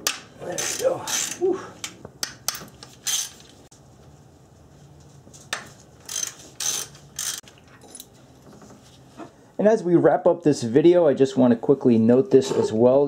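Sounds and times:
ratchet wrench clicking: 0:00.6 - 0:03.4, 0:06.0 - 0:07.5.

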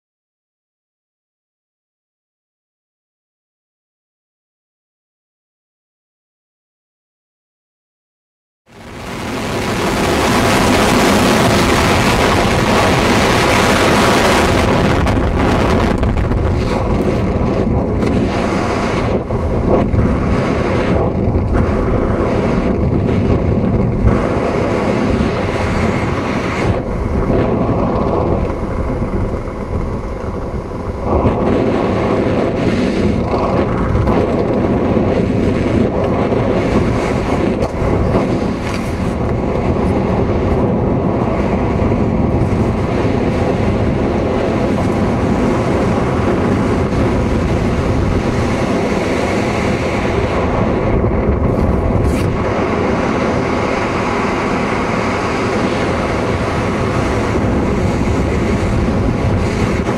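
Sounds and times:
wind roaring over microphone: 0:08.7 - 0:59.9.

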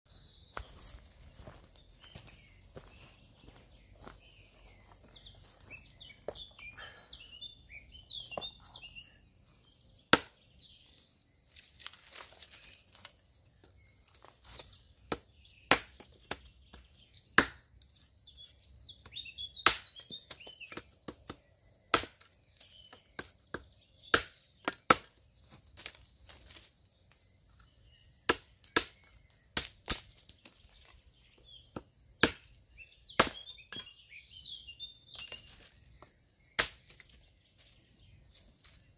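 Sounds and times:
high insect trill: 0:00.1 - 0:38.9
hatchet chopping branches: 0:10.1 - 0:10.4, 0:15.0 - 0:17.7, 0:19.0 - 0:22.3, 0:23.1 - 0:25.2, 0:28.3 - 0:30.5, 0:31.7 - 0:33.9, 0:36.6 - 0:37.1.

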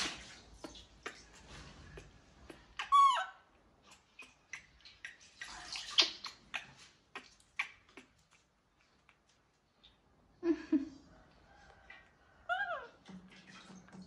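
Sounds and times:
baby monkey squealing: 0:02.8 - 0:03.5, 0:12.5 - 0:13.0.

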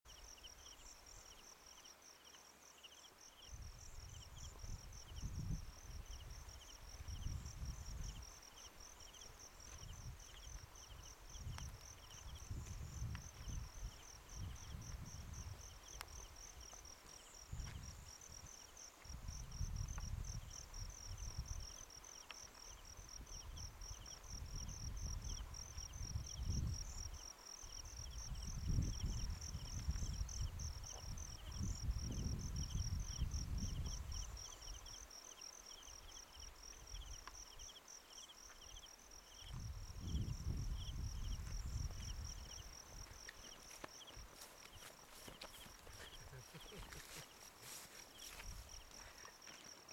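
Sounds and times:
insects trilling: 0:00.1 - 0:49.9
lower insect chirp: 0:00.1 - 0:49.9
wind buffeting microphone: 0:03.6 - 0:08.3, 0:09.8 - 0:15.7, 0:19.1 - 0:21.8, 0:22.9 - 0:27.2, 0:27.8 - 0:34.4, 0:39.4 - 0:43.3.

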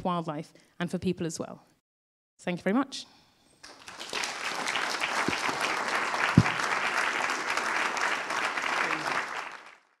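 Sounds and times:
audience applauding: 0:03.6 - 0:10.0
single thump: 0:06.4 - 0:06.6.

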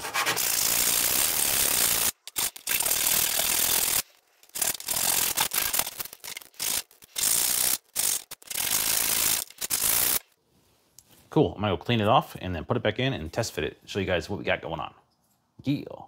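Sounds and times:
sanding metal on sandpaper: 0:00.0 - 0:02.1.

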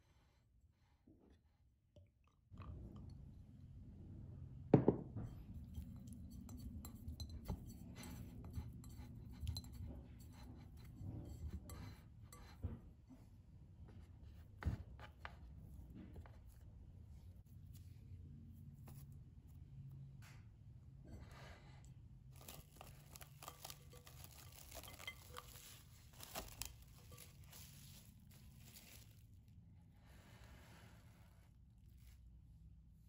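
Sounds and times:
utensils scraping a bowl: 0:05.6 - 0:12.6, 0:22.4 - 0:29.2.

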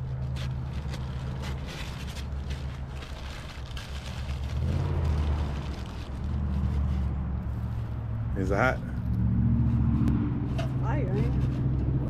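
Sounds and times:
paper crinkling: 0:00.0 - 0:07.9.

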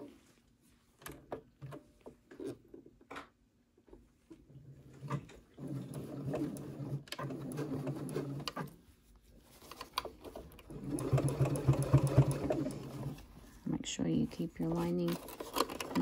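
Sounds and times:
sewing machine stitching: 0:04.9 - 0:08.8, 0:09.8 - 0:13.2, 0:14.8 - 0:16.0.

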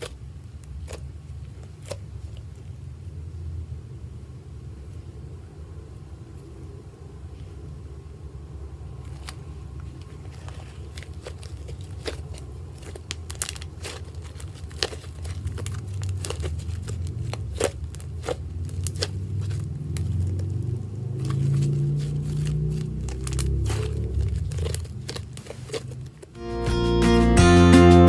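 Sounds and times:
slime clicking and popping: 0:00.0 - 0:02.4, 0:10.9 - 0:26.3.

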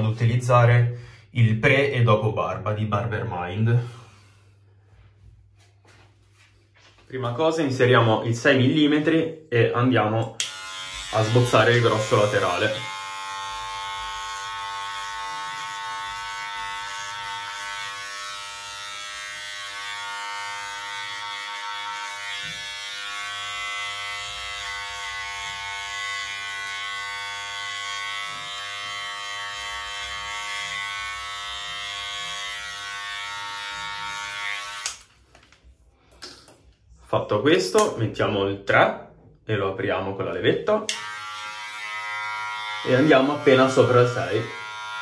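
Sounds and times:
hair clipper buzzing: 0:10.2 - 0:35.6, 0:40.8 - 0:45.0.

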